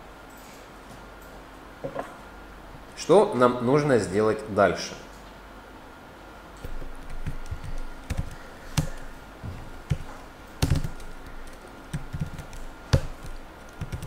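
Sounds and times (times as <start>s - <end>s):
keyboard typing: 6.6s - 14.0s.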